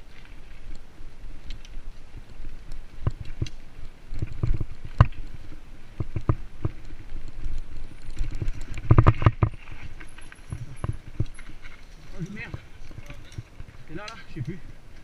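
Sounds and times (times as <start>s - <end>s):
bike tyre rumble on dirt: 0.0s - 15.0s
bike frame and chain rattling: 4.3s - 14.7s.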